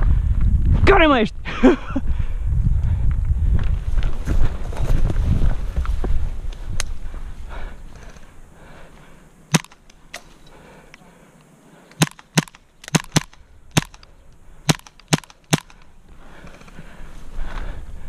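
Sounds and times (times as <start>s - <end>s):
airsoft pistol shots: 9.5s - 9.8s, 12.0s - 14.0s, 14.7s - 15.8s.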